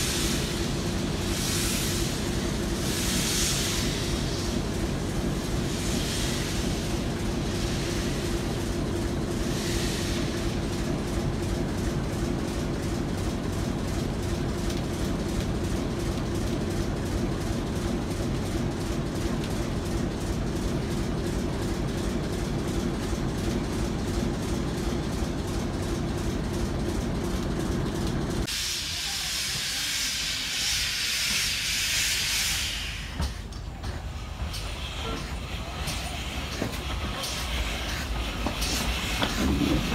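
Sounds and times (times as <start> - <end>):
locomotive steam hiss: 0.0 - 10.9, 28.4 - 39.9
train engine drone: 0.0 - 39.9.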